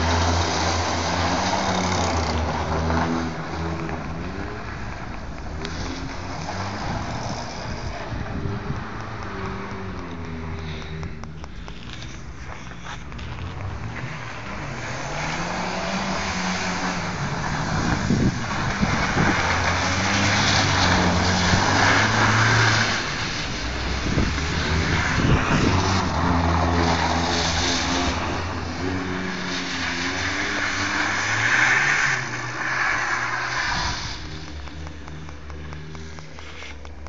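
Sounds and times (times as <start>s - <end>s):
car engine revving: 0.0s - 37.0s
wheels hissing in snow: 10.4s - 34.9s.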